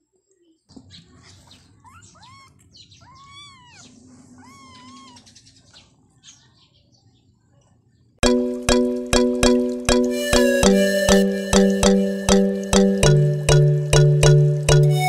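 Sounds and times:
kittens mewing: 1.7s - 5.4s.

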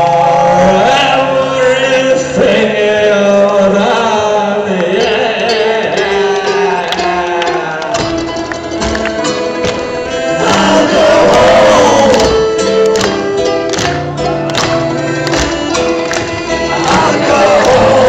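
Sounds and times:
man singing: 0.0s - 8.2s, 9.1s - 12.8s, 16.6s - 18.0s
strummed acoustic guitar: 0.0s - 18.0s
violin melody: 8.2s - 18.0s.

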